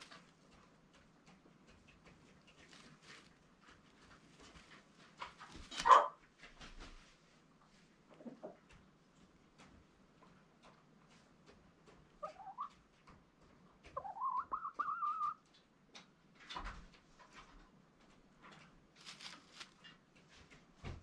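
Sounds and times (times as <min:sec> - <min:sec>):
soft rustles and clicks: 0:00.0 - 0:14.0, 0:15.1 - 0:21.0
hen calling: 0:14.0 - 0:15.4.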